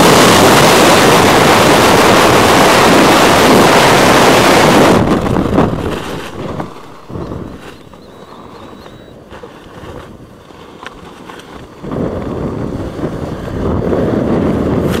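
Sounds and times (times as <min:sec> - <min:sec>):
wind rushing over microphone: 0:00.0 - 0:15.0
faint clicks: 0:06.0 - 0:09.2.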